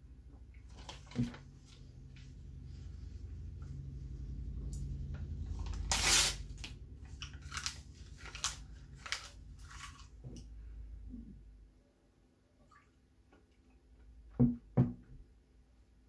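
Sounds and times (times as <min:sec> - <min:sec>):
paper crackling: 0:05.5 - 0:10.2
paper crunching as chewed: 0:07.1 - 0:10.2.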